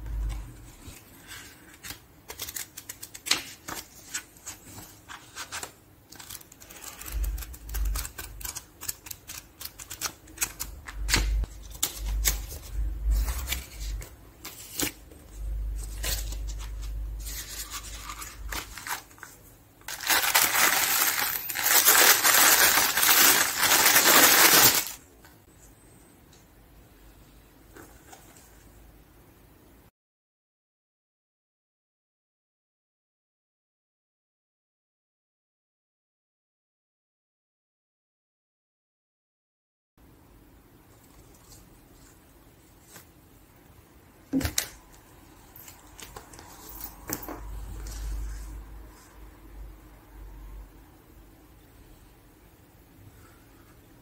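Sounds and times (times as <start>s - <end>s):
packaging rustling: 15.8s - 25.0s.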